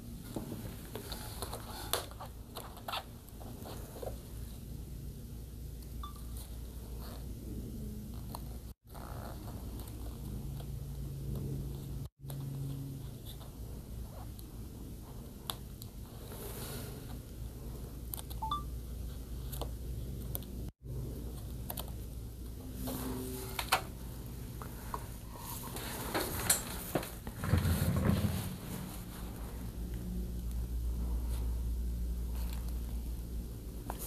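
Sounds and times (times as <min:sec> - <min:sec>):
steady low hum: 0:00.0 - 0:34.0
faint short beeps: 0:06.0 - 0:06.3, 0:18.4 - 0:18.7.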